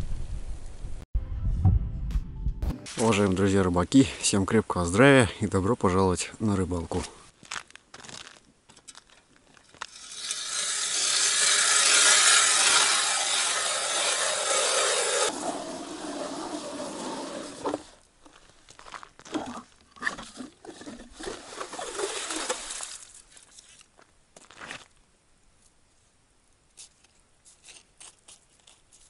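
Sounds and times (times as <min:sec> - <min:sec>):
ice auger drilling through ice: 0:09.9 - 0:18.0, 0:19.3 - 0:23.1.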